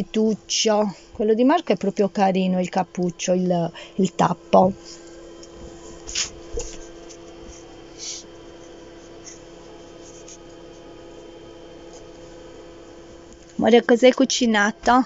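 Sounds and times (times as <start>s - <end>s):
steady low hum: 0.0s - 15.0s
knife scraping pumpkin rind: 6.1s - 7.2s.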